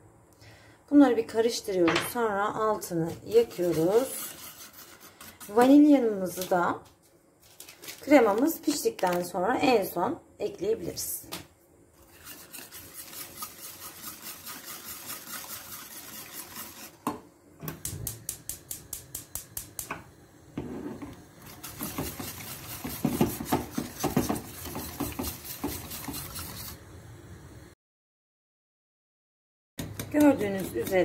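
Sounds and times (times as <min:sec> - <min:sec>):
whisk scraping in metal pot: 0:03.1 - 0:06.0, 0:12.0 - 0:17.0, 0:20.6 - 0:26.8, 0:30.1 - 0:31.0.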